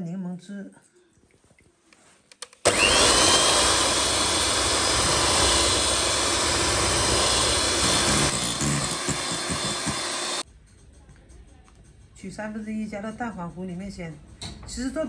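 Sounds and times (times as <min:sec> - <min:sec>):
electric hand mixer whine: 0:02.7 - 0:10.4.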